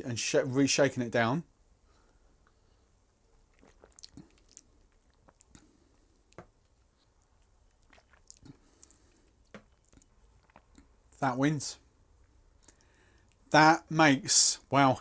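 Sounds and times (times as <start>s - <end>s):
man sipping and swallowing: 2.4s - 11.1s, 12.5s - 13.5s.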